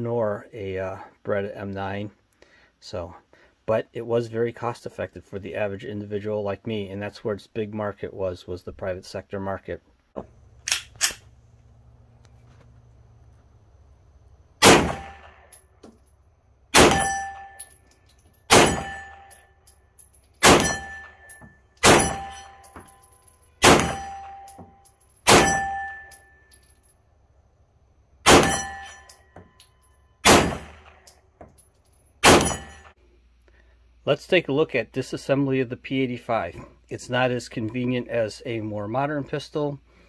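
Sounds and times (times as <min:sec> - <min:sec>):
pistol shots: 0:14.6 - 0:15.5, 0:16.7 - 0:17.6, 0:18.5 - 0:19.4, 0:20.4 - 0:21.1, 0:21.8 - 0:22.5, 0:23.6 - 0:24.6, 0:25.2 - 0:26.0, 0:28.2 - 0:29.0, 0:30.2 - 0:31.1, 0:32.2 - 0:32.9
steel plate target ringing: 0:16.8 - 0:17.8, 0:18.5 - 0:19.7, 0:20.4 - 0:26.6, 0:28.3 - 0:30.7, 0:32.2 - 0:33.0.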